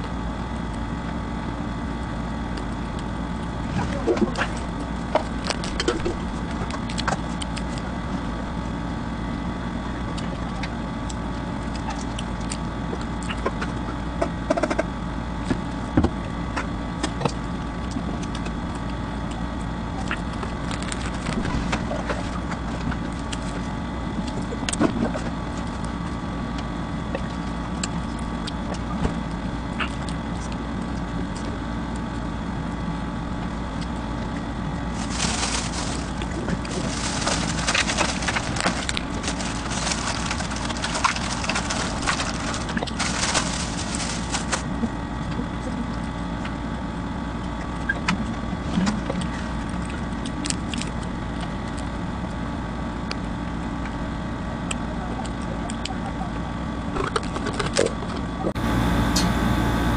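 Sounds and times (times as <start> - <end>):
steady background hum: 0.0 - 59.9
flatbread tearing and chewing: 17.0 - 26.0, 34.8 - 44.9, 47.4 - 52.4.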